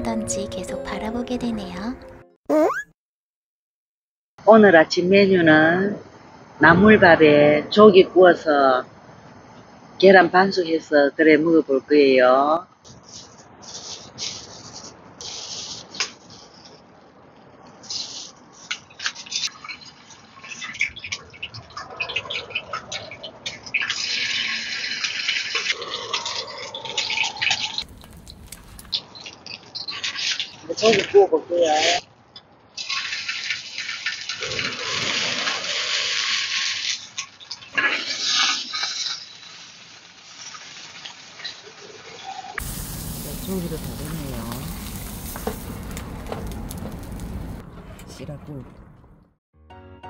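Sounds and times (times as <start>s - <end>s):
water pouring and splashing: 23.7s - 25.8s, 27.5s - 29.0s, 32.8s - 41.7s, 42.6s - 47.6s
clams sizzling on a grill: 27.8s - 30.5s, 32.8s - 34.4s, 35.7s - 47.6s.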